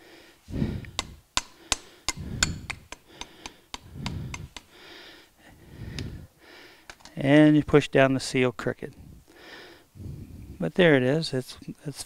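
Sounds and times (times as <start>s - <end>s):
hammer tapping on metal: 0.9s - 4.7s.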